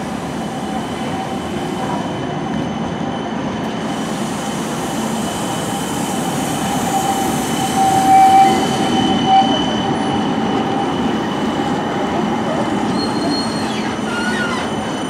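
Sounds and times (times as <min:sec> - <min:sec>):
tram wheels rumbling on rail: 0:00.0 - 0:15.0
wheels squealing on bend: 0:12.8 - 0:15.0.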